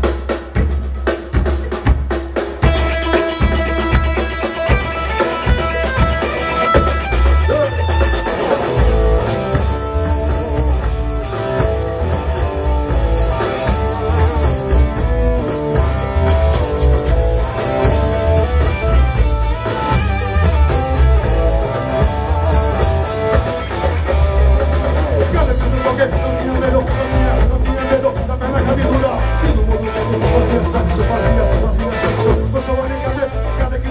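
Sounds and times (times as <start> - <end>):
booming bass: 0.0 - 33.9
drums: 0.0 - 33.9
electric guitar: 0.1 - 33.9.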